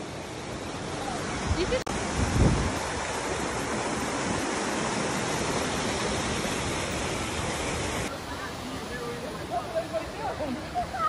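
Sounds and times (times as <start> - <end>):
creek water rushing over rocks: 0.0 - 11.0.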